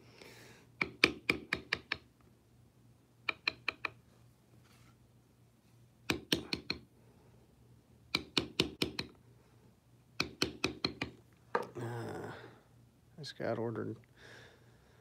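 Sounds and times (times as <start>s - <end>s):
mallet tapping tool into leather: 0.8s - 2.1s, 6.1s - 6.8s, 8.1s - 9.1s, 10.2s - 11.7s.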